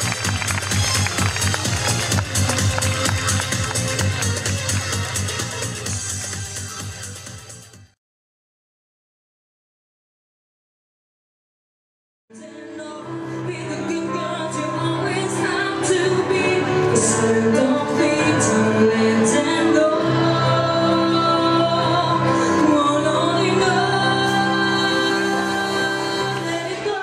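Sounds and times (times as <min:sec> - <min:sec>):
musical accompaniment: 0:00.0 - 0:08.0, 0:12.3 - 0:27.0
woman singing into microphone: 0:12.3 - 0:27.0.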